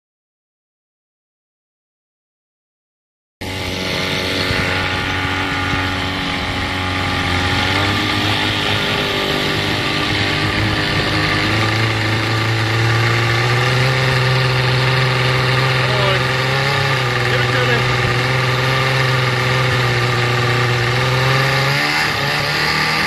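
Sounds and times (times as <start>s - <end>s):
outboard motor running: 3.4s - 23.0s.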